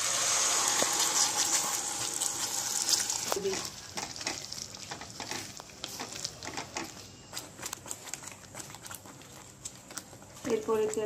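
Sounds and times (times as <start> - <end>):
paste sizzling in hot oil: 0.0 - 6.8
spatula scraping in a pan: 0.0 - 7.3.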